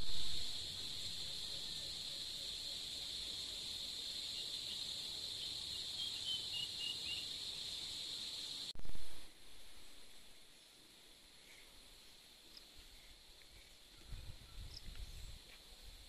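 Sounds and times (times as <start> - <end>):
high-pitched insect chorus: 0.0 - 8.7.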